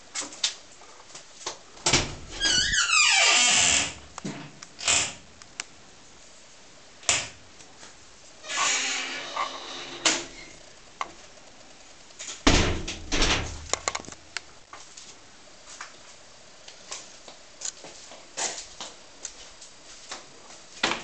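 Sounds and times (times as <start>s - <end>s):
wooden door thudding: 1.8s - 4.4s, 12.4s - 13.7s
sharp clicks and knocks: 12.1s - 14.5s.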